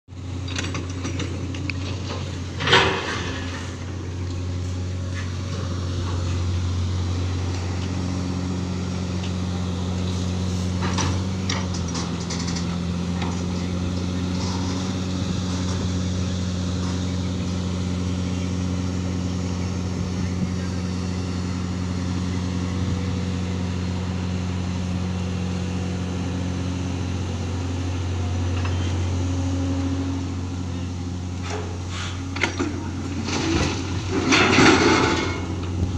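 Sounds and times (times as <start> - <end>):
heavy diesel machinery running: 0.1 - 35.9
metal clanks and knocks: 0.4 - 3.9, 10.7 - 13.5, 31.4 - 35.8.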